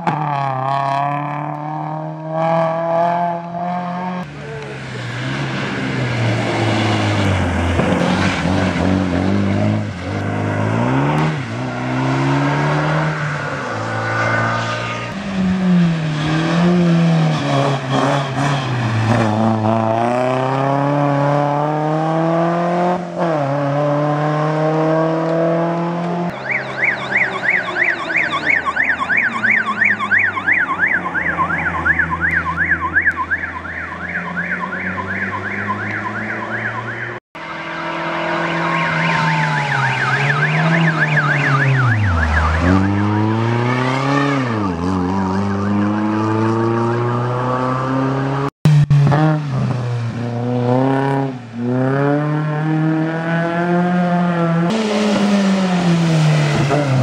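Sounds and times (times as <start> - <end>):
car engine accelerating through gears: 0.0 - 26.4, 34.1 - 57.0
warbling siren: 26.3 - 44.6, 45.4 - 47.6.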